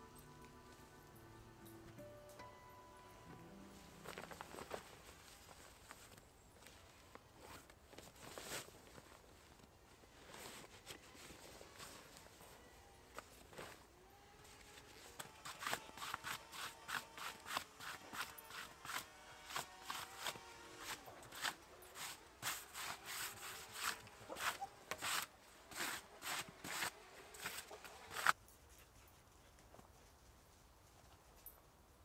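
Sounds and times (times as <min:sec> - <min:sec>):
scraping strokes on wood: 0:14.6 - 0:28.4.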